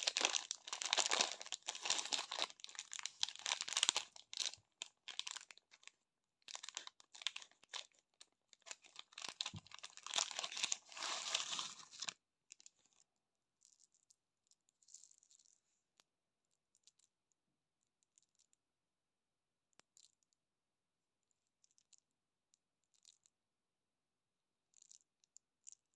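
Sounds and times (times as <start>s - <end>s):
plastic bag crinkling and tearing: 0.0s - 5.9s, 6.5s - 12.1s.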